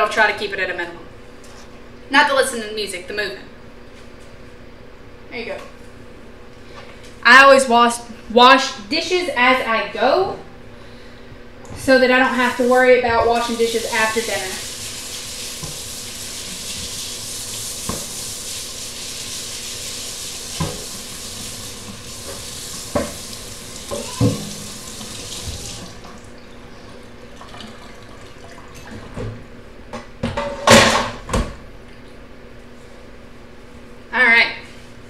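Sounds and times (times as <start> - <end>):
tap running into sink: 15.1 - 18.2, 20.3 - 26.2
dishes clattering: 23.9 - 24.7
dishes knocking: 23.9 - 24.7.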